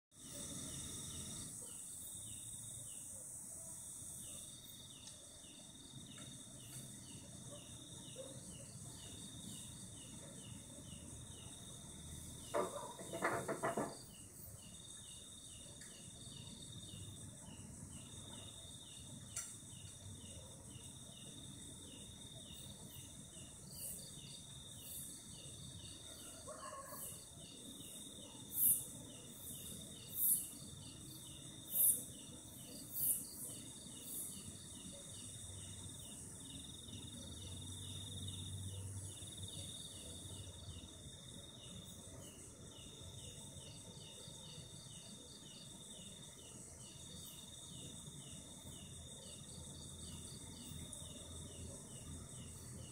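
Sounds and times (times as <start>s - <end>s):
insects trilling: 0.2s - 52.9s.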